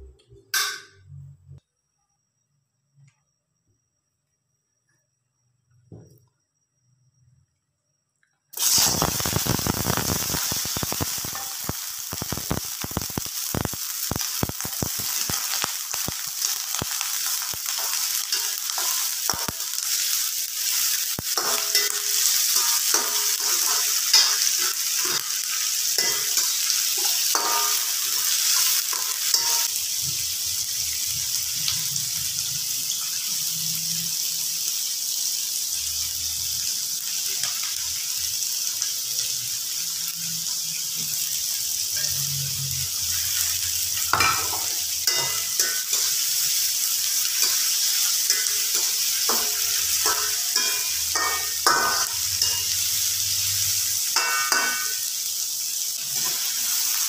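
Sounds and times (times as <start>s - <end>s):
onions sizzling in hot oil: 8.6s - 57.0s
metal spoon scraping wok: 26.0s - 29.7s, 47.4s - 53.5s.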